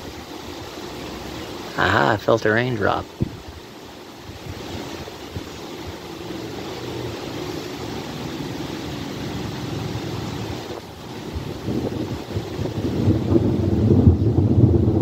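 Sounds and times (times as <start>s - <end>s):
distant thunder rumbling: 4.2s - 15.0s.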